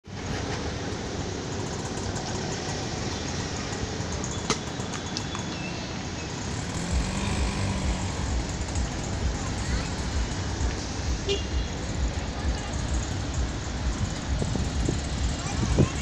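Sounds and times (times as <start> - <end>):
road traffic noise: 0.0 - 16.0
low engine hum: 6.0 - 16.0.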